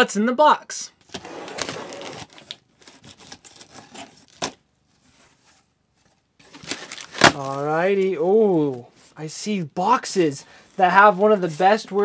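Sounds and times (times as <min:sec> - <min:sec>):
cardboard flaps rustling open: 0:01.1 - 0:08.8.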